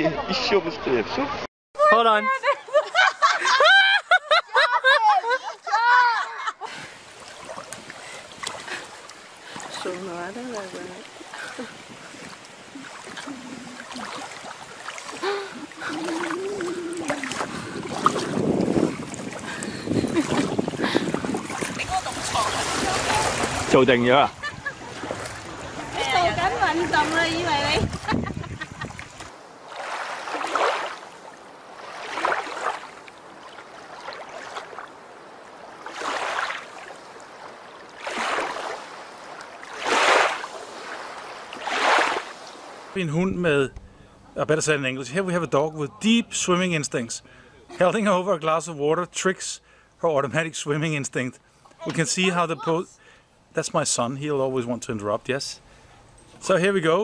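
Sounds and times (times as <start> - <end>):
small waves washing ashore: 6.6 - 43.9
shallow water sloshing: 6.8 - 43.0
wavering vocal sound: 15.2 - 17.5
low steady hiss: 42.2 - 57.0.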